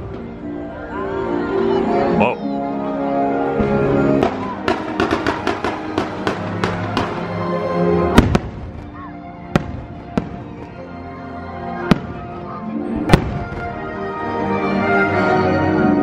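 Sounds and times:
music: 0.0 - 16.0
fireworks bangs: 3.6 - 10.9, 11.8 - 13.9
fireworks crackling: 4.2 - 11.1, 11.7 - 14.0.

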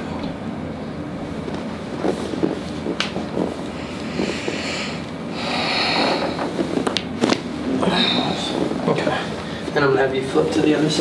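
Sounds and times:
sharp crack of back adjustment: 1.5 - 9.6
breathy hiss: 3.7 - 6.8.

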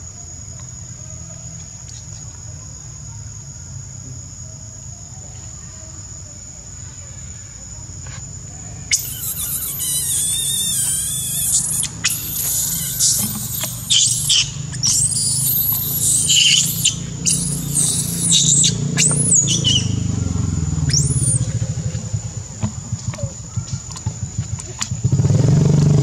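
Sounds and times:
monkey screaming: 8.9 - 20.1, 20.9 - 21.5.

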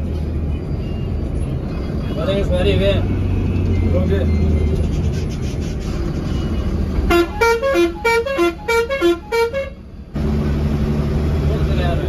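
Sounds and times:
bus engine and road noise: 0.0 - 12.0
musical vehicle horn tune: 7.1 - 9.8.

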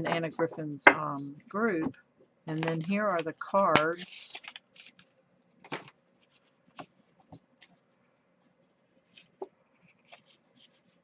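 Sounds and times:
paper rustling: 2.6 - 11.0.

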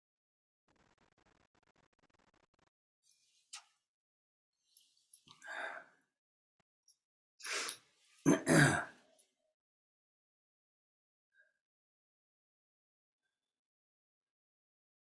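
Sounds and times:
man clearing his throat: 8.3 - 8.9.

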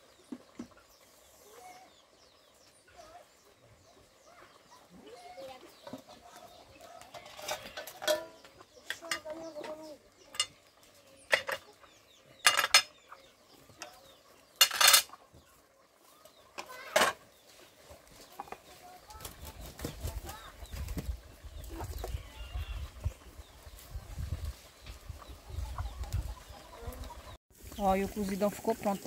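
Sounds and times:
pots and utensils clanking: 7.0 - 11.8, 12.4 - 13.1, 13.8 - 15.2, 16.5 - 17.3
hens clucking: 15.1 - 29.0.

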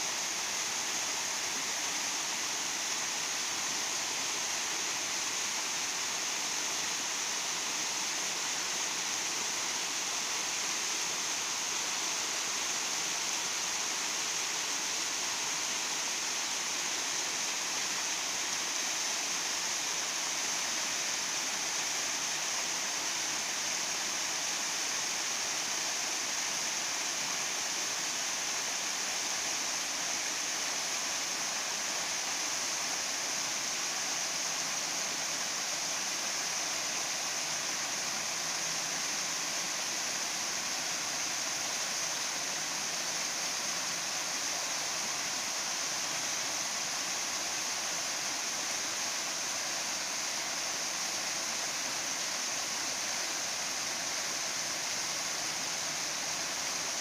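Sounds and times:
waterfall rushing and splashing: 0.0 - 57.0.

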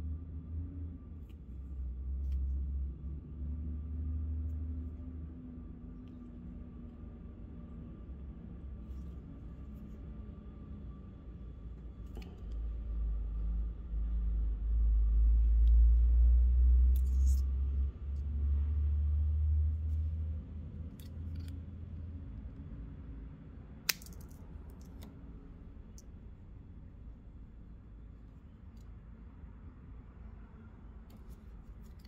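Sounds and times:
fishing line rustling and clicking: 16.9 - 17.5, 23.9 - 25.1
sharp click: 23.9 - 25.1.

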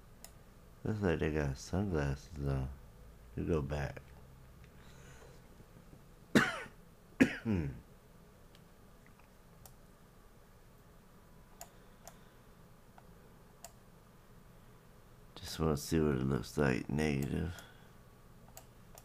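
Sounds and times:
man clearing throat: 6.3 - 7.8
faint clicks: 11.6 - 12.2.

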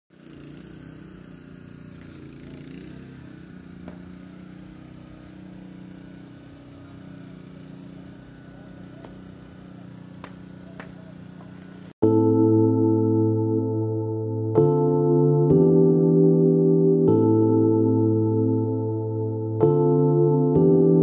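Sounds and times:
engine humming steadily: 0.1 - 12.0.

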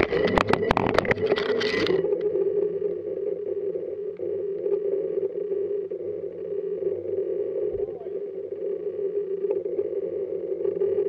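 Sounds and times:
electric hum: 0.0 - 11.0
faint ticks: 4.1 - 4.8.

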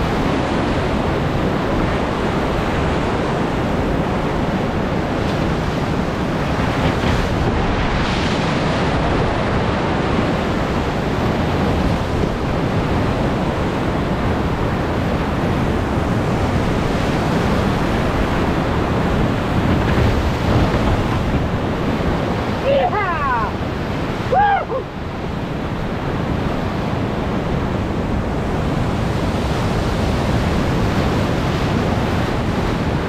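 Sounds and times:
whitewater rushing: 0.0 - 25.2.

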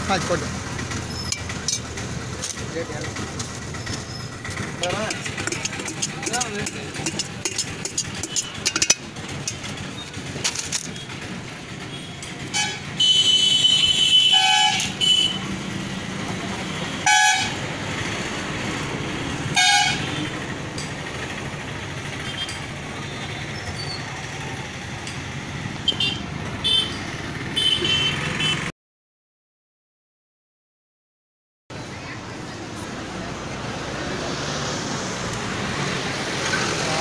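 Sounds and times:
street traffic: 0.0 - 28.8, 31.7 - 37.0
vehicle horns honking: 8.2 - 9.0, 11.9 - 15.5, 16.8 - 17.6, 19.5 - 20.3, 25.8 - 28.7.

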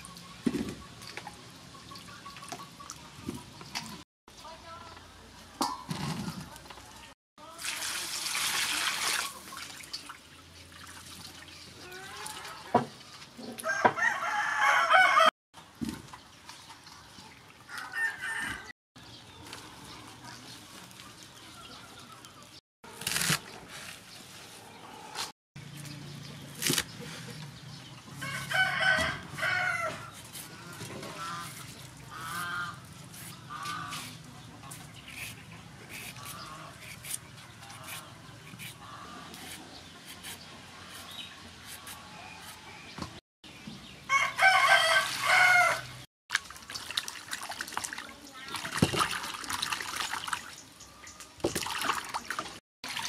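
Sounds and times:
rooster crowing: 13.6 - 15.3, 17.7 - 18.7, 28.2 - 30.1, 44.1 - 45.9
vegetables being handled and peeled: 22.0 - 24.6, 26.5 - 27.3.

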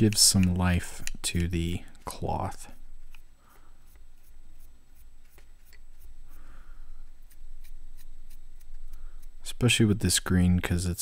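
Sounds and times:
dry brush scratching: 2.1 - 10.1.

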